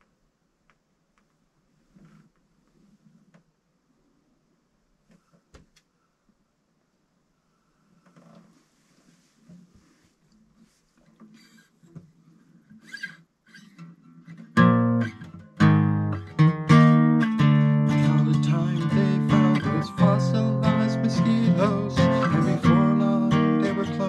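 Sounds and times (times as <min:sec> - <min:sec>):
acoustic guitar strumming: 0:13.6 - 0:24.0.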